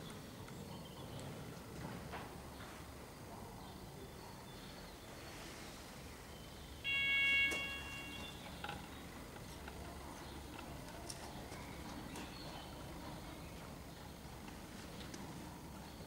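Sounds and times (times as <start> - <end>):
ringing signal tone: 6.8 - 8.7.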